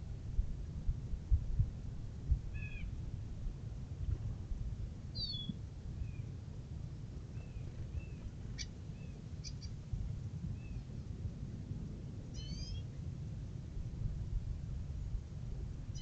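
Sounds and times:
steady low rumble: 0.0s - 16.0s
birds chirping: 5.2s - 5.6s, 7.4s - 9.8s.

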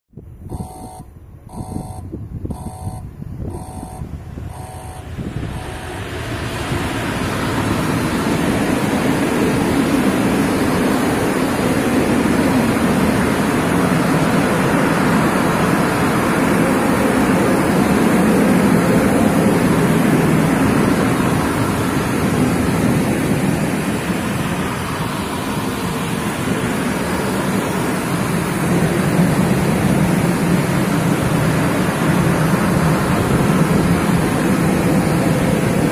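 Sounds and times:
short beeps: 0.4s - 6.1s.

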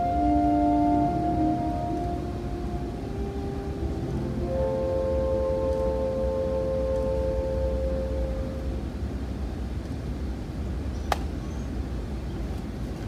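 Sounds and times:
saxophones and piano chord: 0.0s - 9.2s
low hall hum: 0.0s - 13.0s.

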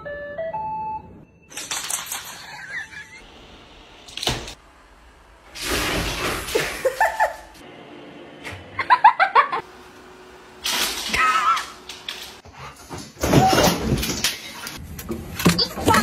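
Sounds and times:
people laughing: 2.3s - 3.2s, 6.5s - 7.5s, 8.8s - 9.6s.

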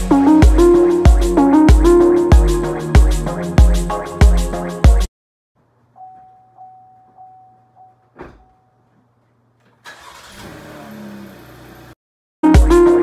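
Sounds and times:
car warning chime pinging: 6.0s - 8.9s
thump: 8.2s - 8.5s
car engine starting and running: 9.7s - 12.0s.

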